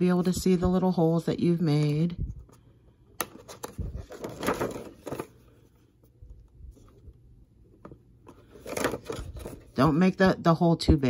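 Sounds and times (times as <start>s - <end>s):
stiff plastic sheets rustling: 3.3s - 5.8s, 8.4s - 10.0s.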